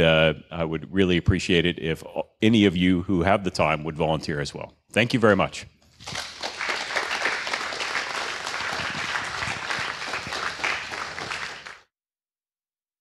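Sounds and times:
audience applauding: 0:06.0 - 0:11.9.

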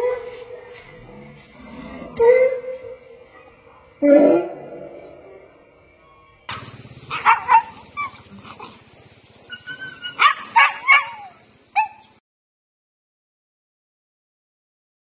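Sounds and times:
dogs barking and yelping: 0:02.2 - 0:05.2, 0:06.5 - 0:12.2.

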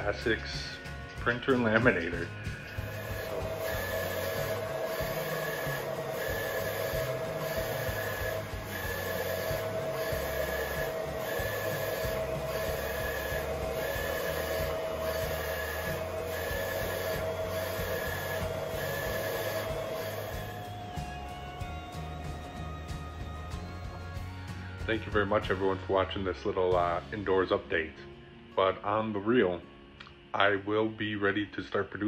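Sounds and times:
printer carriage whirring: 0:02.6 - 0:22.0.

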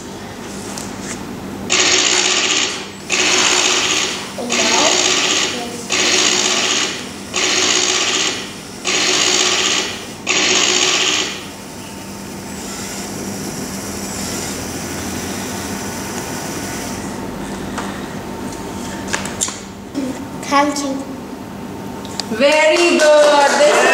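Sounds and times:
toy motors and gears whirring: 0:01.7 - 0:17.2.

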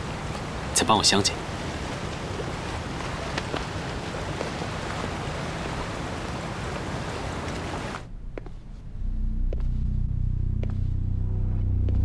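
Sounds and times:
water wash: 0:00.0 - 0:08.1
wind: 0:00.0 - 0:10.8
low rumble: 0:08.0 - 0:12.0.

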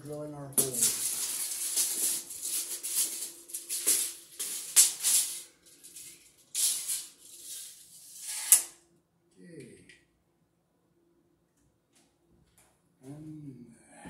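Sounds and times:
tape measure blade rattling: 0:00.6 - 0:08.8
tape measure click: 0:06.6 - 0:08.8.

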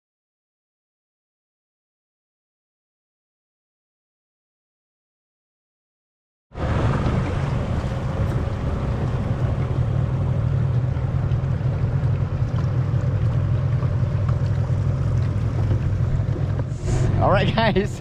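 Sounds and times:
water rushing past hull: 0:06.5 - 0:18.0
wind on microphone: 0:06.6 - 0:17.8
outboard motor running: 0:06.6 - 0:18.0.

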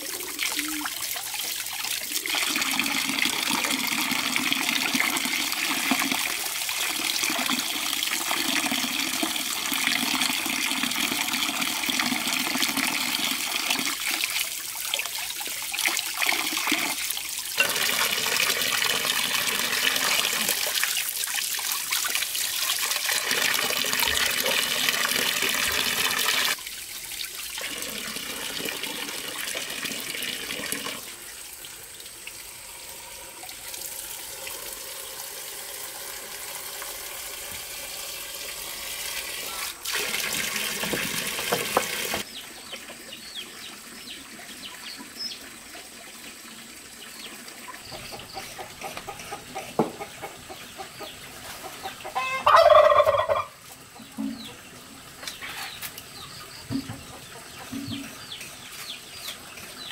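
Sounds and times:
tap water splashing into basin: 0:39.8 - 0:42.3.

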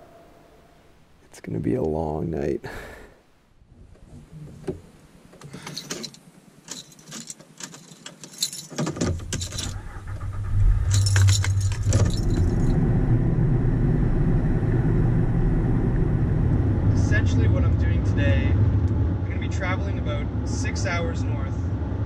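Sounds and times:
car engine rumbling: 0:03.6 - 0:22.0
keys jangling: 0:05.5 - 0:10.0, 0:10.8 - 0:12.8.

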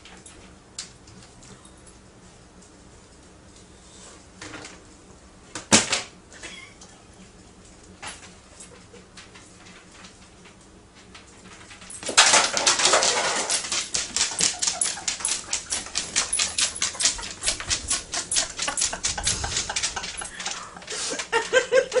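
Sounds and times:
dog making crisp clicks: 0:12.7 - 0:21.3.

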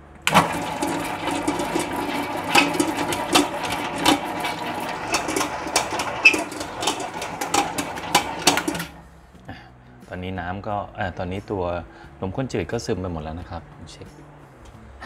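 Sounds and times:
stand mixer motor humming: 0:00.0 - 0:09.0
dough knocking against steel bowl: 0:00.5 - 0:09.0.

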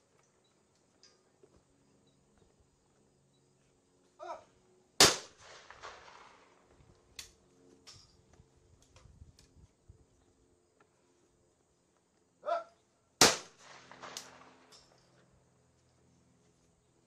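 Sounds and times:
person calling: 0:04.2 - 0:04.5
shotgun shot echoing: 0:05.0 - 0:06.5, 0:13.2 - 0:14.7.

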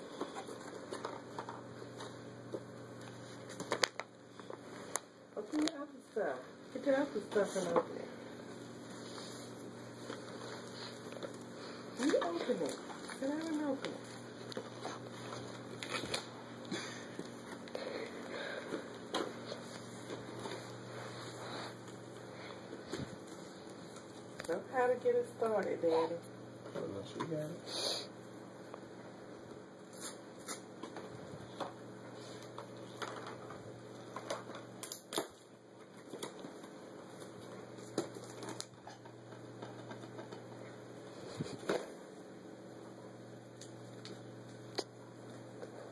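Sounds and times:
low room hum: 0:00.0 - 0:45.9
wrapping paper crinkling: 0:08.5 - 0:24.5, 0:32.2 - 0:40.4.

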